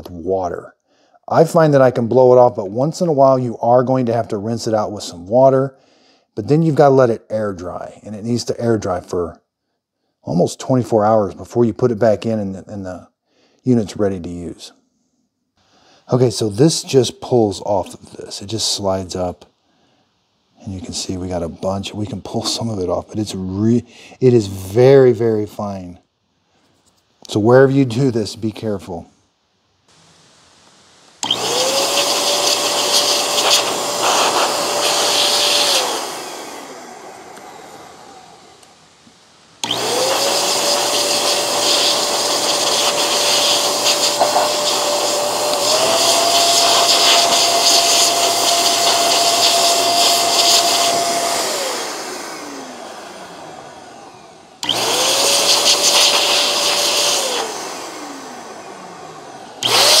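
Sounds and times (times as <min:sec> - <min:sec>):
electric air blower whining: 0:29.9 - 1:00.0.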